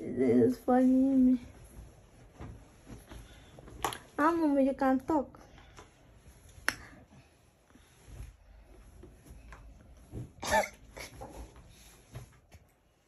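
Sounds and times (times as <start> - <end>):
bedding rustling: 0.0 - 13.0
soft thumps: 1.5 - 3.9
person coughing: 10.4 - 11.2.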